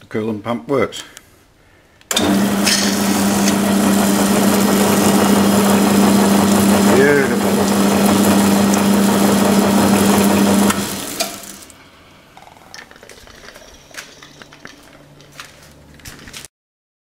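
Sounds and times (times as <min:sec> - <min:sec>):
coolant flowing hiss: 0:02.1 - 0:11.8
cutoff saw humming: 0:02.1 - 0:12.0.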